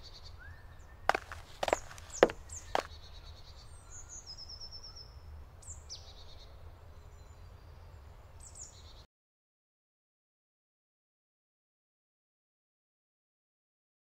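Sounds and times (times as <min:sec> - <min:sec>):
songbirds calling: 0:00.0 - 0:09.0
footstep on gravel: 0:01.1 - 0:02.9.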